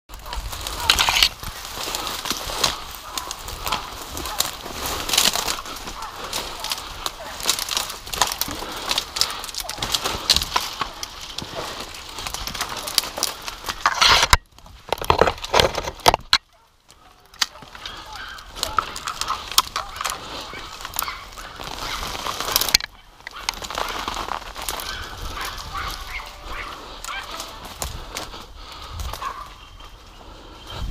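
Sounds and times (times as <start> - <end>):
dry branches rustling and snapping: 0.1 - 30.9.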